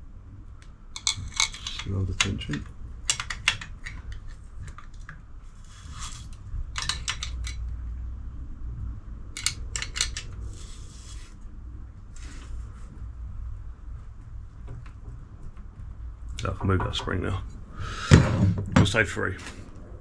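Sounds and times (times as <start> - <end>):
spanner clicking and scraping metal: 1.0 - 4.8, 6.8 - 7.6, 9.4 - 10.6.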